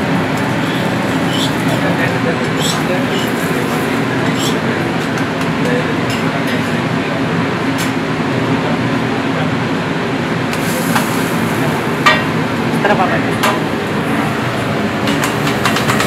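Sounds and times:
bread sizzling on griddle: 0.1 - 4.5, 10.6 - 11.7.

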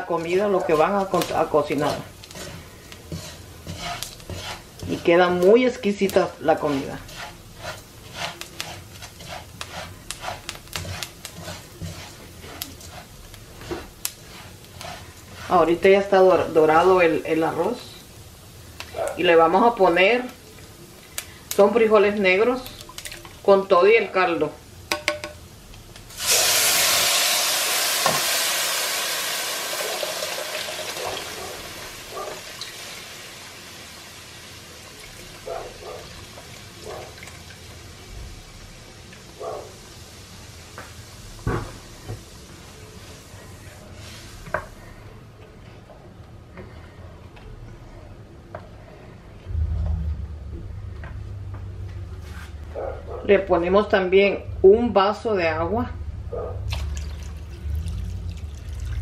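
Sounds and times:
beans sizzling in hot pan: 0.0 - 45.2
spoon scraping rice in a pan: 0.1 - 16.0
spoon knocking on pot: 24.9 - 25.4.

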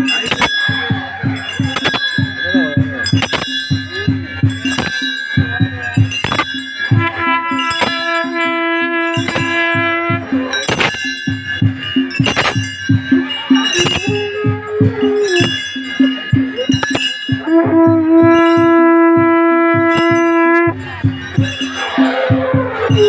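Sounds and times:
bells ringing: 0.0 - 23.0
drums beaten fast: 0.0 - 23.0
long horn tone: 7.0 - 10.4, 17.4 - 20.8.

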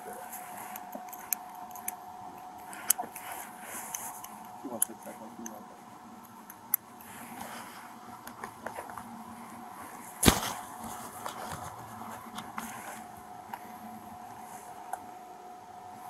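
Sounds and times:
clothing rustling on camera: 9.9 - 13.2.

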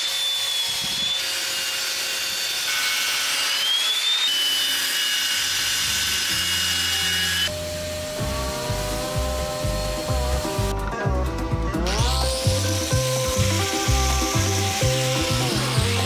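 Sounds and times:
table saw ripping wood: 0.0 - 7.5, 11.8 - 16.0.

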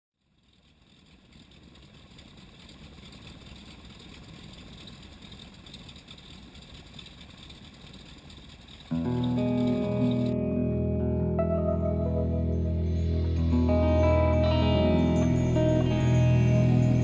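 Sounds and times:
radial engine idling: 0.2 - 10.4.

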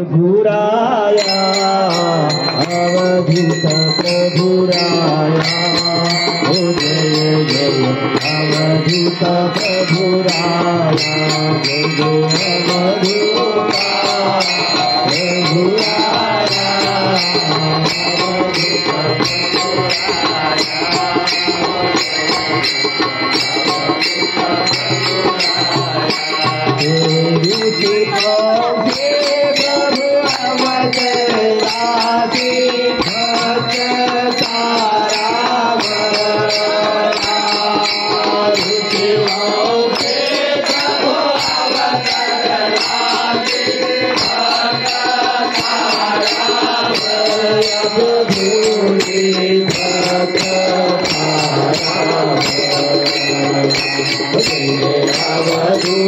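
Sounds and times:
devotional chanted singing: 0.0 - 56.0
instrumental accompaniment: 0.9 - 56.0
steady percussive beat: 1.1 - 56.0.

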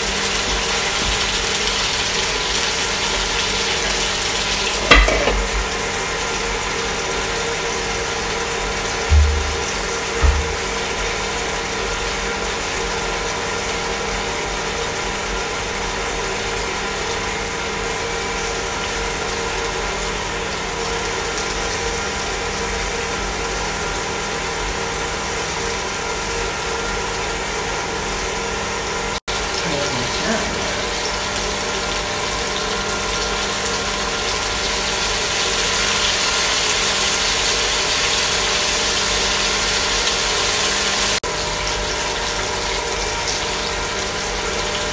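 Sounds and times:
cooker fan hum: 0.0 - 44.9
fish frying in a pan: 0.0 - 44.9.

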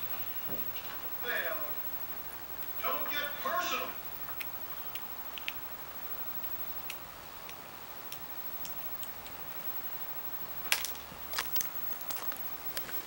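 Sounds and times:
cat crunching pretzel: 4.2 - 5.7, 10.6 - 13.0.

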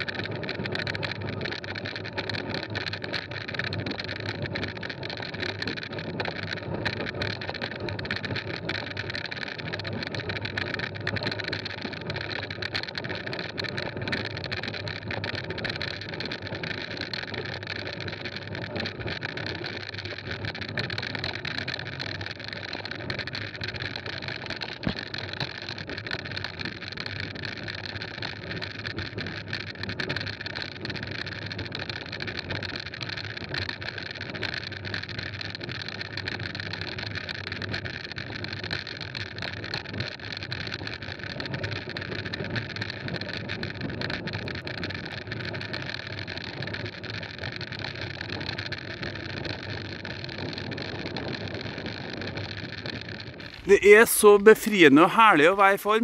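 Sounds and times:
small rattles and clicks: 0.0 - 36.6.

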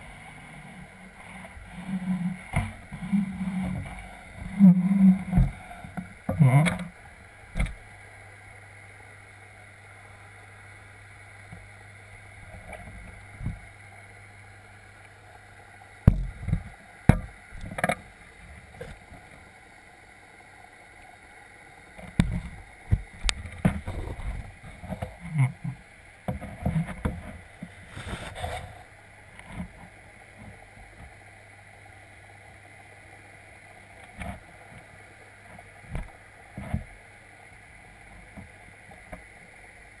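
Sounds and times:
steady low hum: 0.0 - 40.0
muffled underwater knocks: 1.2 - 6.9, 16.0 - 18.0, 22.0 - 28.6.

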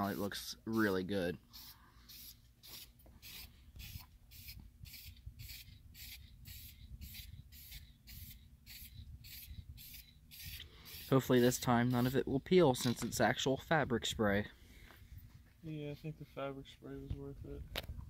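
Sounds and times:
hissing brush strokes on carpet: 0.0 - 12.2.

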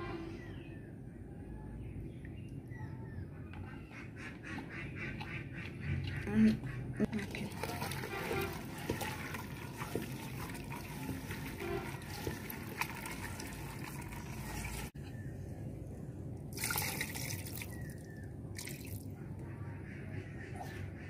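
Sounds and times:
hand squelching mixing meat: 7.1 - 15.0
rush of liquid: 7.2 - 15.0.

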